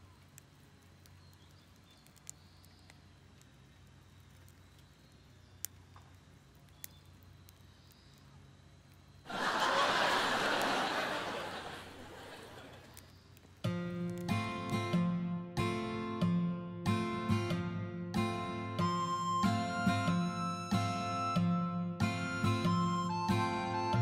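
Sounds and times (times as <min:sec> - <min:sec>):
wood fire crackling: 0:00.0 - 0:15.8.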